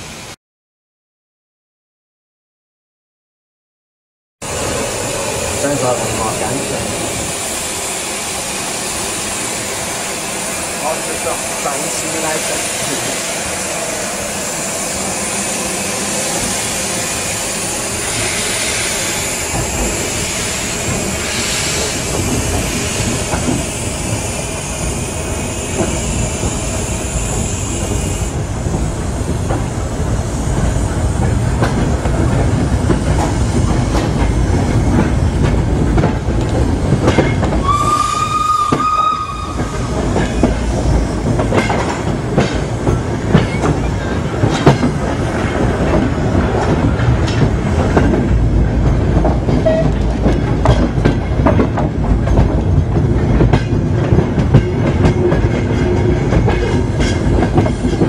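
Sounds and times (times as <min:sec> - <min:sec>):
steam hiss: 0:04.5 - 0:28.4
train wheels clicking over rail joints: 0:17.9 - 0:27.0, 0:27.8 - 0:38.0, 0:38.6 - 0:58.0
steam whistle blast: 0:37.6 - 0:39.9.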